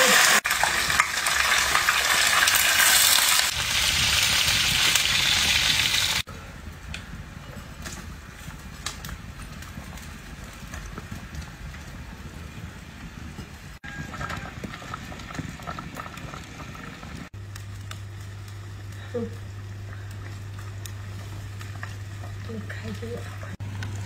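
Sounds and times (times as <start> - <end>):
water sizzling in a hot wok: 0.0 - 6.3, 13.7 - 24.0
broth simmering: 0.0 - 24.0.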